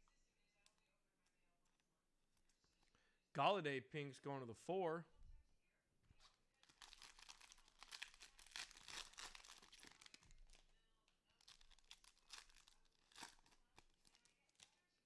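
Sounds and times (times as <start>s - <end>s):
wrapper crinkling and tearing: 6.6s - 10.6s, 11.3s - 14.9s.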